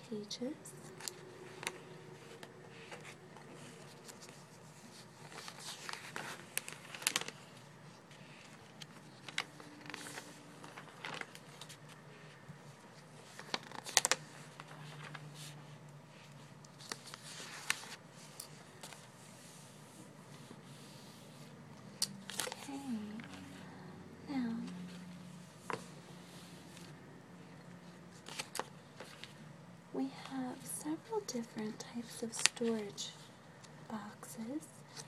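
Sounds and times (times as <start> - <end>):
paper pages rustling: 0.7 - 23.7, 24.6 - 27.0, 27.8 - 29.4, 31.4 - 33.7
page-flip snaps: 5.2 - 7.5, 8.4 - 11.9, 13.3 - 15.2, 22.0 - 23.3, 28.2 - 29.4.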